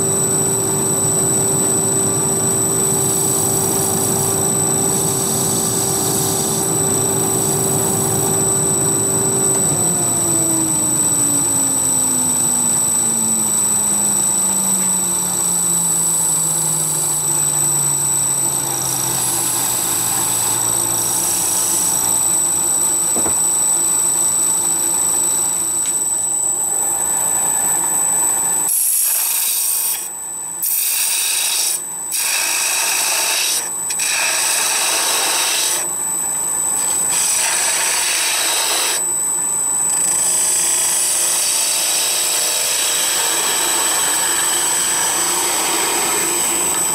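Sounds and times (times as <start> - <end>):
wood lathe whine and hum: 0.0 - 46.9
turning tool rasping wood: 28.7 - 35.9, 36.8 - 39.0, 40.2 - 46.8.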